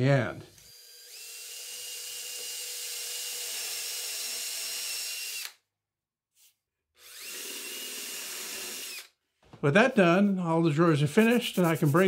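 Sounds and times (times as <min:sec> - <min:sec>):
electric drill boring wood: 0:00.5 - 0:05.6, 0:07.0 - 0:09.2.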